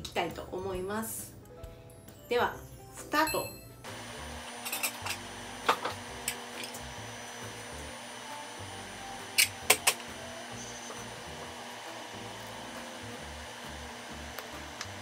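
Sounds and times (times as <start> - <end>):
machine humming: 3.8 - 15.0
kitchenware clinking: 4.6 - 6.8.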